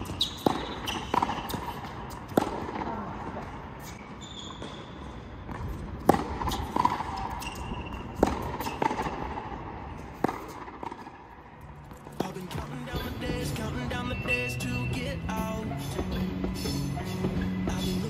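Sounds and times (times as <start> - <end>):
high shoe squeaks: 0.0 - 2.4, 3.7 - 18.0
racquets striking tennis ball: 0.0 - 14.3.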